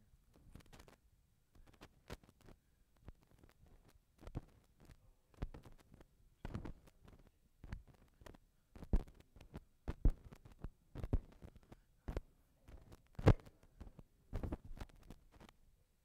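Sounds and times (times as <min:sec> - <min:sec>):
rustling: 0:00.3 - 0:15.6
microphone handling thumps: 0:09.9 - 0:11.5, 0:12.1 - 0:14.9.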